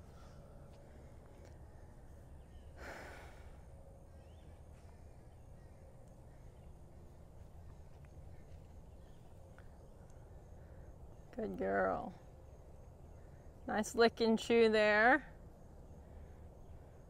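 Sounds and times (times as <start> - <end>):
faint bird chirps: 0.0 - 14.3.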